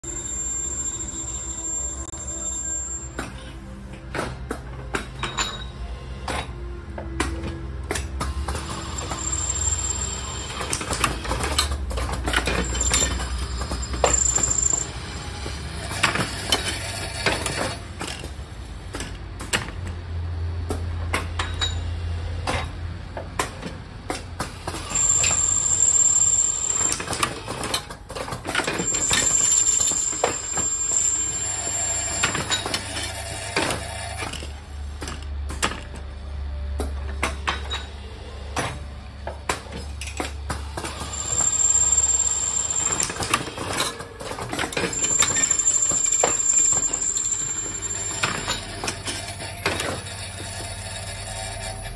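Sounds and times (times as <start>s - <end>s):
machine clicking and knocking: 10.6s - 14.6s.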